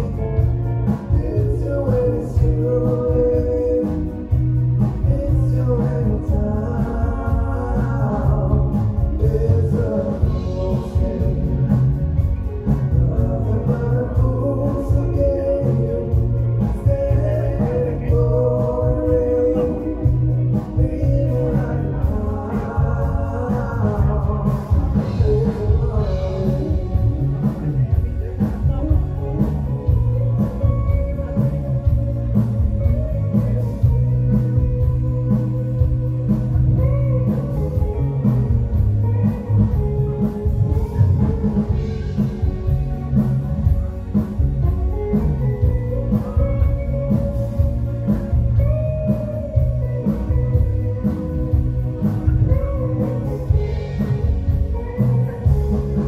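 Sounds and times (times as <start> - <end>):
man singing: 0.0 - 44.2, 45.1 - 56.0
live band playing: 0.0 - 56.0.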